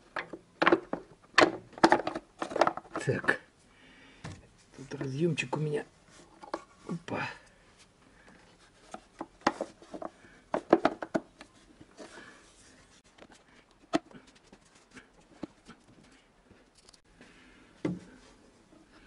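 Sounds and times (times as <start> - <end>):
plastic cover knocking and rattling: 0.0 - 3.3, 9.0 - 11.4.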